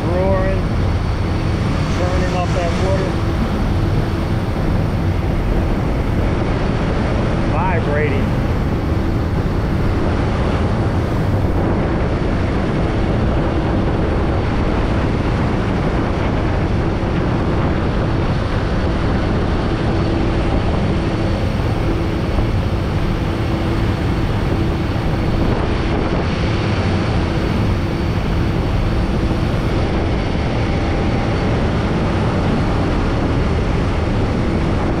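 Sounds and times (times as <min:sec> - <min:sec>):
boat engine droning: 0:00.0 - 0:35.0
propeller wake rushing: 0:00.0 - 0:35.0.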